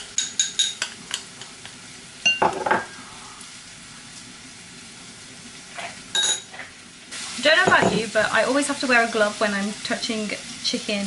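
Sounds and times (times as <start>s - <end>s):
spoon clinking against dishes: 0.1s - 1.5s, 6.1s - 6.5s
faint steady hiss: 0.2s - 11.0s.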